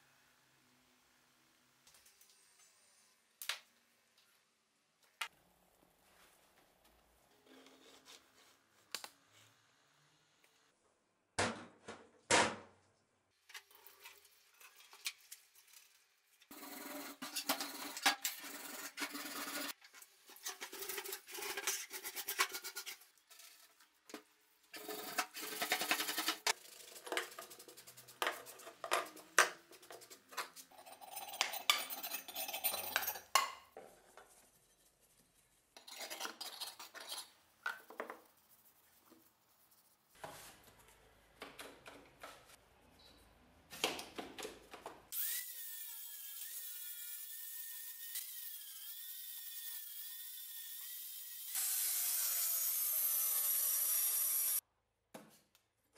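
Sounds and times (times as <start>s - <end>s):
scrubbing metal in a sink: 13.6s - 24.1s, 24.7s - 33.4s.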